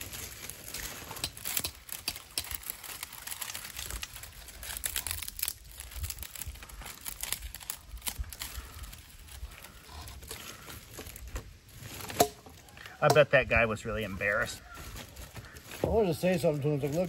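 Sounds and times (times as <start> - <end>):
twigs snapping: 0.0 - 13.4
twigs rustling: 0.0 - 17.0.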